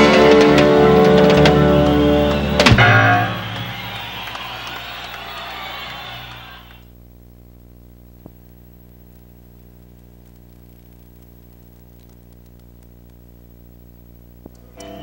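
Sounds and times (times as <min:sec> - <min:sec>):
faint recording hiss: 0:00.0 - 0:15.0
low electrical hum: 0:00.0 - 0:15.0
click: 0:09.9 - 0:13.2, 0:14.4 - 0:14.6.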